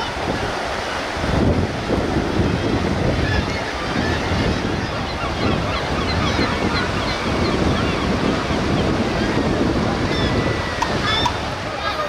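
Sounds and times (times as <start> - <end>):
choppy sea waves: 0.0 - 12.0
wind buffeting microphone: 0.0 - 12.0.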